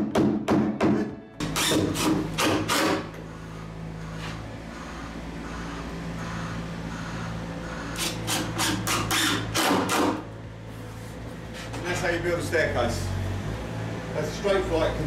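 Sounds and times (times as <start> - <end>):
steady low hum: 1.1 - 15.0
drill driving screws into wood: 1.4 - 3.1, 8.0 - 10.2.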